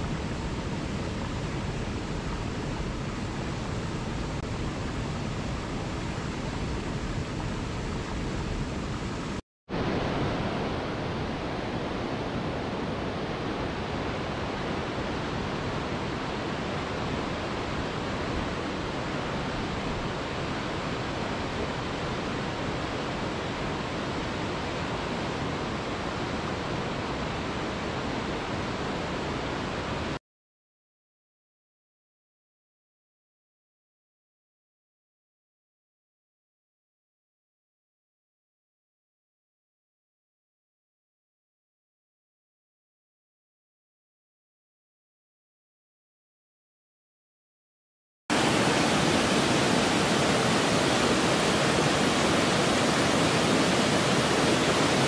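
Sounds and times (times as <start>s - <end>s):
waterfall rushing: 48.3s - 55.0s.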